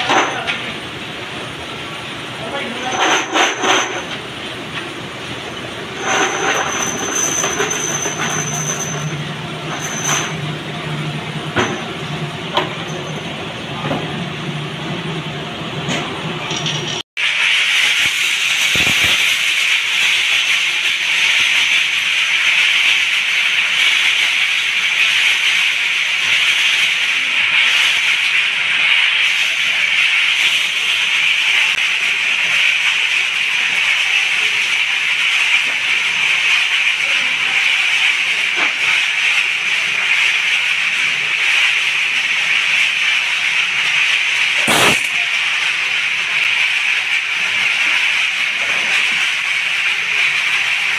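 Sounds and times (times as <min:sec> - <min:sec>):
chemical bath hissing fizz: 0:17.2 - 0:50.9.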